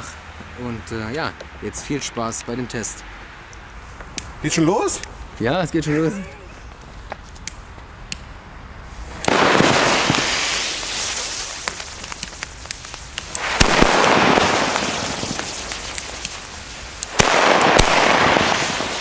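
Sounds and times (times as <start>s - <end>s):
fireworks cracks and pops: 6.6s - 19.0s
fireworks bangs: 7.0s - 19.0s
fireworks hissing: 7.4s - 19.0s.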